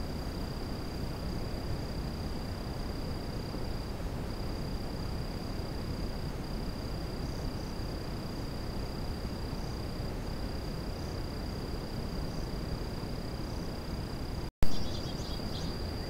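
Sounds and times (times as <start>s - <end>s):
outdoor hiss and rumble: 0.0s - 16.0s
faint high chirps: 14.6s - 16.0s.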